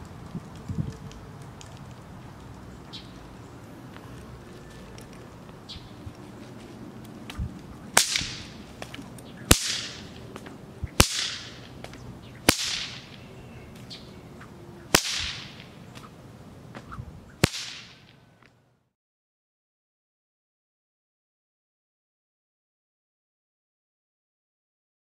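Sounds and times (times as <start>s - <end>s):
whip cracking: 7.3s - 16.2s, 16.8s - 18.2s.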